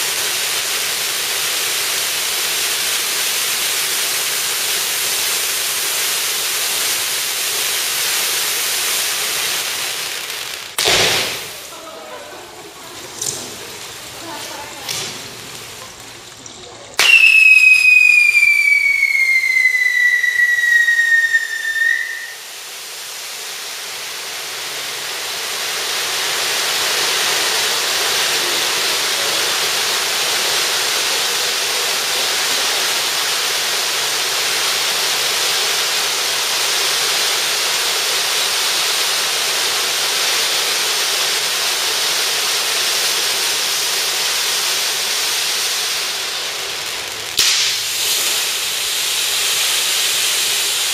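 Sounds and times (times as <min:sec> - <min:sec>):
spark fountains hissing: 0:00.0 - 0:50.9
pyrotechnic whistle falling in pitch: 0:17.0 - 0:22.6.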